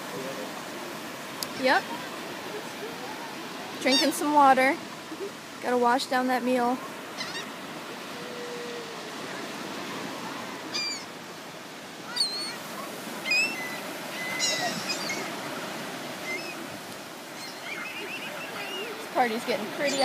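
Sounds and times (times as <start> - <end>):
surf washing: 0.0 - 20.0
gulls squawking: 1.5 - 4.4, 7.0 - 9.5, 10.2 - 11.2, 12.0 - 20.0.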